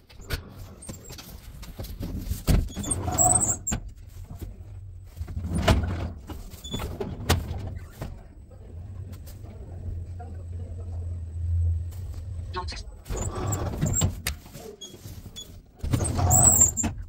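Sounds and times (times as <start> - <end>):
elevator motor hum: 8.2 - 14.3.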